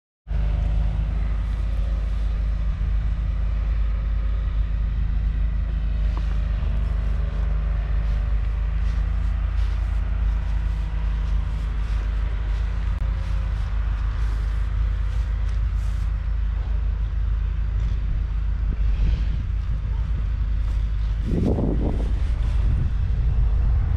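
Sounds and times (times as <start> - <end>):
diesel engine idling: 0.3 - 23.9.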